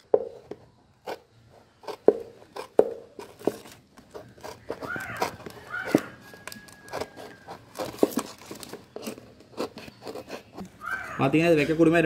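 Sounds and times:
knife cutting cardboard: 0.2s - 10.7s
blade squeaking on card: 4.1s - 11.8s.

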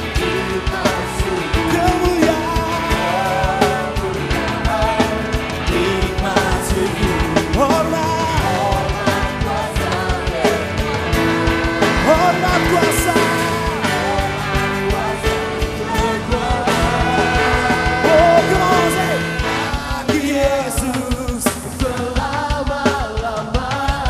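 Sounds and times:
drum kit beat: 0.0s - 24.0s
live band music: 0.0s - 24.0s
person singing: 0.0s - 24.0s.

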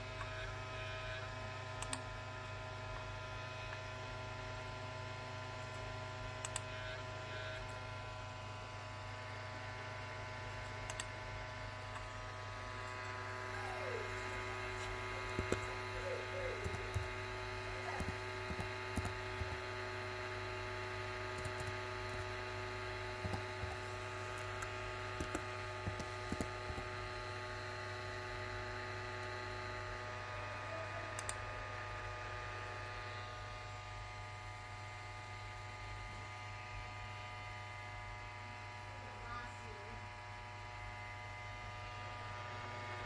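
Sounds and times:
steady electrical hum: 0.0s - 43.0s
laptop keys clicking: 17.8s - 19.6s, 23.2s - 23.8s, 24.4s - 26.9s.

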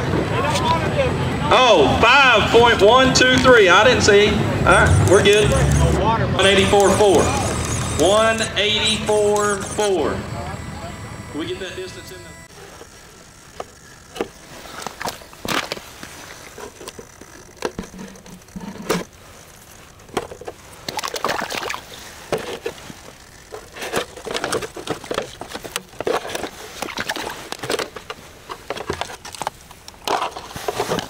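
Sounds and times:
plastic clicks and scrapes: 12.5s - 21.2s, 22.1s - 31.0s
wet mud squelches: 20.6s - 23.2s.

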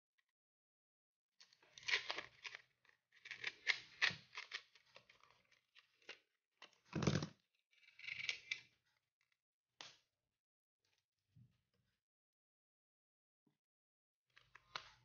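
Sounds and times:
plastic card scraping and clicking: 1.7s - 6.2s.

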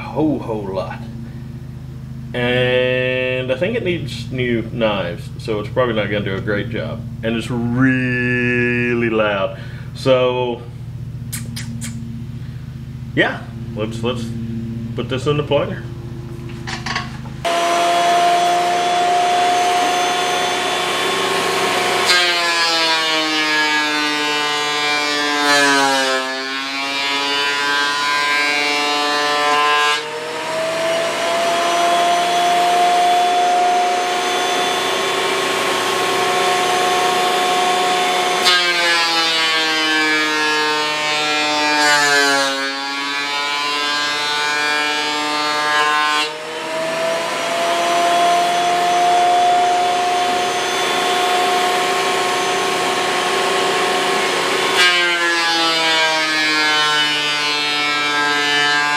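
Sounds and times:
thickness planer motor whine: 11.9s - 58.9s.

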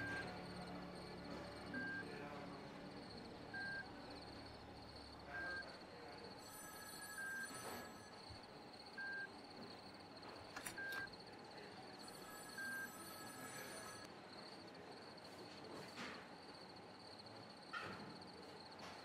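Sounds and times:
patient monitor beeping: 0.0s - 14.1s.

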